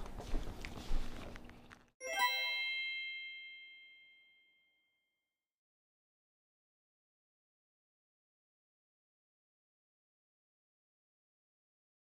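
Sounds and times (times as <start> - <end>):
kitchen room noise: 0.0 - 2.0
bright chime ringing: 2.0 - 4.6.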